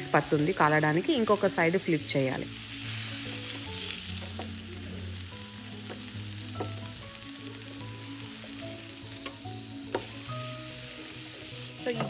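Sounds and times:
patties sizzling on a grill: 0.0s - 12.0s.

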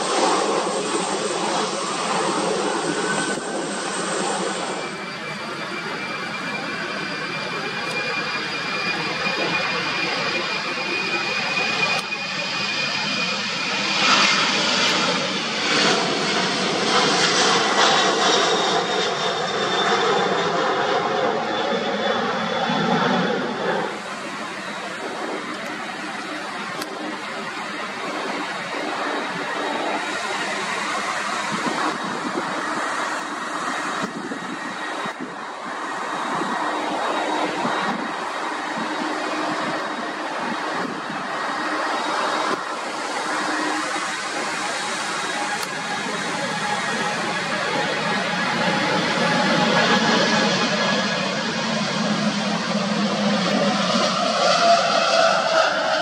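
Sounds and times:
jet engine whine: 0.0s - 56.0s
jet taking off: 0.0s - 56.0s.

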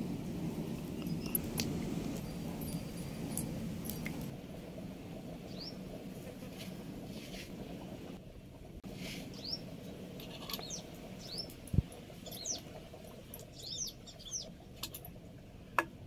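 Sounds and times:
bird chirp: 5.5s - 5.8s, 9.3s - 9.7s, 10.6s - 11.6s, 12.2s - 12.7s, 13.5s - 14.5s.

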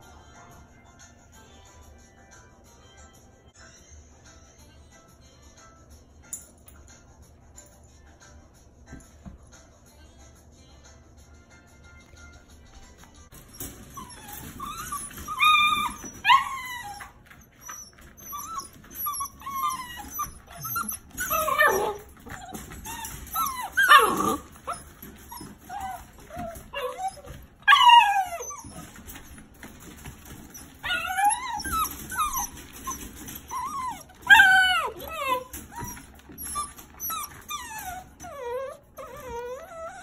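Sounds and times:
puppies yipping and squeaking: 13.3s - 40.0s.

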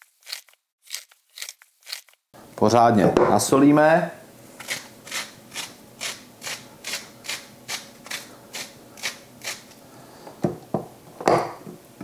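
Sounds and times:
spice mill grinding salt: 0.0s - 2.2s, 4.6s - 9.8s.

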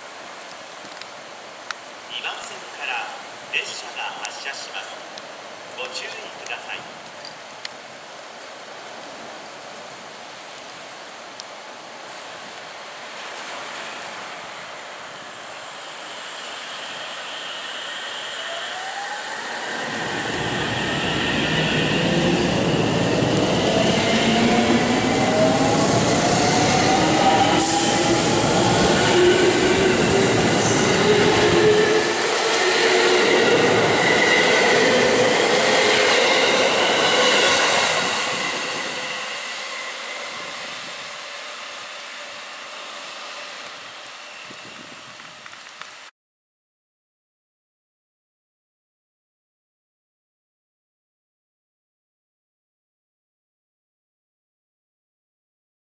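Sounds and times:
train running noise: 13.1s - 46.0s.

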